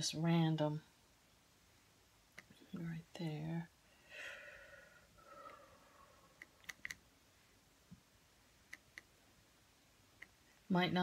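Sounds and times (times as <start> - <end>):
brush dabbing paint clicks: 8.7 - 9.1.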